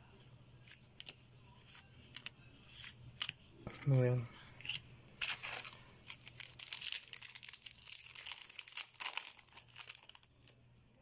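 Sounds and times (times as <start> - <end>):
foil wrapper crinkling: 5.2 - 10.6.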